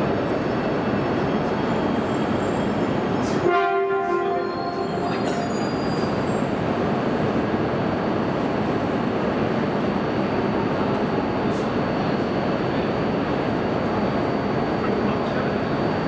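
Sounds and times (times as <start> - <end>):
train rumble: 0.0 - 16.0
faint high squeals: 1.2 - 3.4, 4.3 - 6.6
train horn blast: 3.4 - 5.1.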